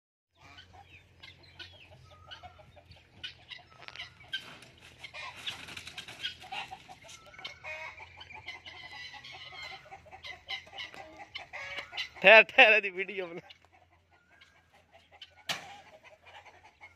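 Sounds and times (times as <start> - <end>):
chickens clucking and squawking: 0.4 - 16.9
poultry calling: 0.4 - 16.9
wings flapping: 4.3 - 6.9.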